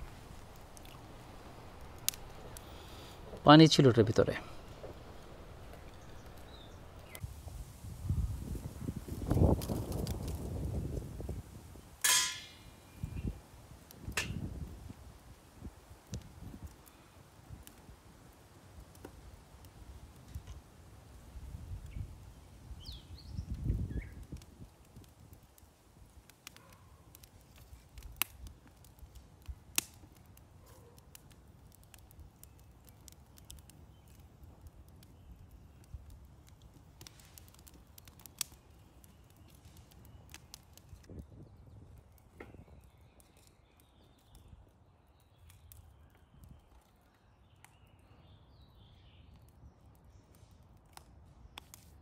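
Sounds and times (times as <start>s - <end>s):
sharp fire pops: 0.0s - 18.0s, 21.4s - 44.5s
wood fire crackling: 0.0s - 52.0s.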